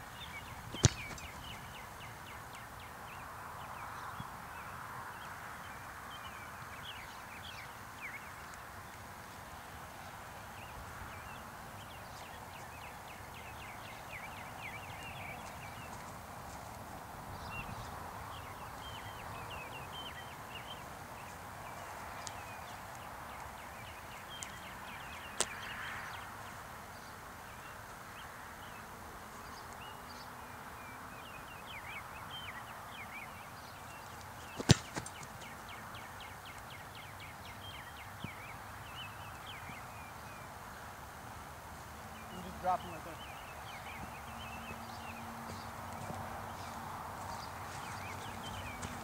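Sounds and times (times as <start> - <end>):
football kick thump: 0.7 - 1.6, 34.6 - 35.1.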